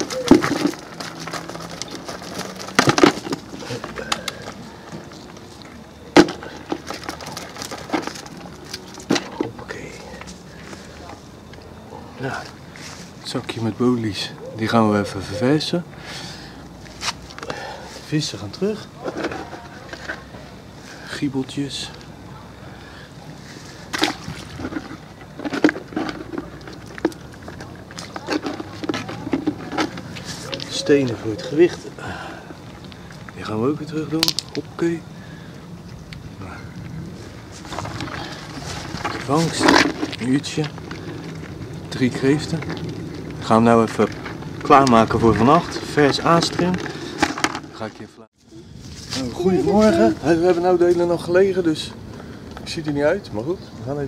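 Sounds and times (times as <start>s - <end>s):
wire mesh rattling and scraping: 0.0s - 4.7s.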